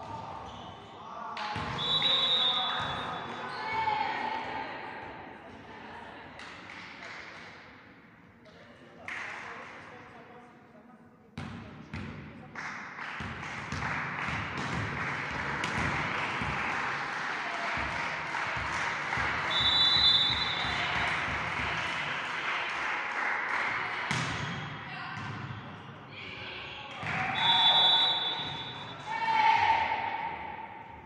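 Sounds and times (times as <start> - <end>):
voices echoing in hall: 0.0 - 31.0
referee's whistle: 1.6 - 3.4, 19.5 - 20.8, 27.2 - 29.1
ball bouncing on hall floor: 13.2 - 16.6, 24.1 - 25.6.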